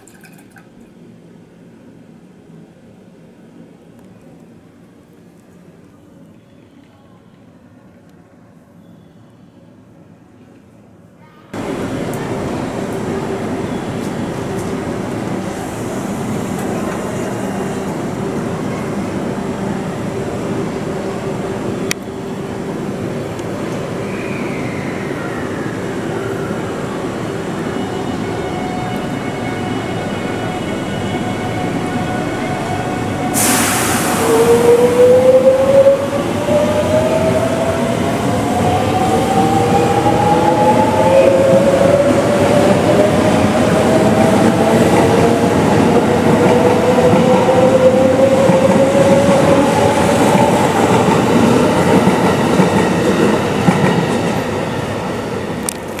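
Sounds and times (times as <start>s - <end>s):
sudden hiss: 33.3s - 34.3s.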